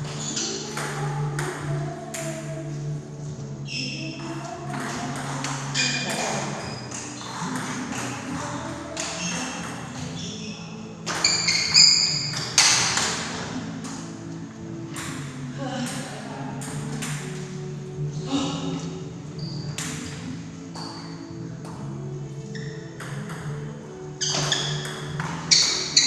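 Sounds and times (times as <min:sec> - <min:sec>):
table tennis ball hits: 0:04.7 - 0:10.2, 0:11.1 - 0:14.1, 0:14.9 - 0:17.4, 0:19.8 - 0:21.8, 0:22.9 - 0:26.0.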